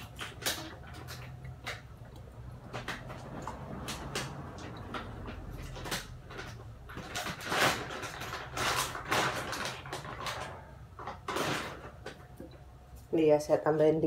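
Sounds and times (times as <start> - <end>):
packaging rustling and scraping: 2.5 - 12.5.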